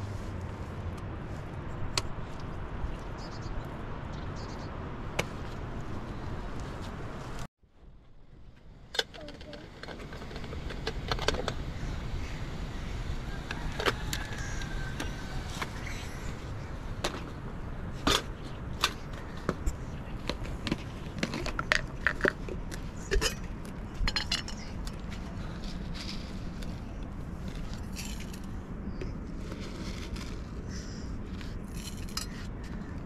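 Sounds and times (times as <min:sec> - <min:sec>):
low background rumble: 0:00.0 - 0:33.0
metal teapot clicks and rattles: 0:24.1 - 0:24.7.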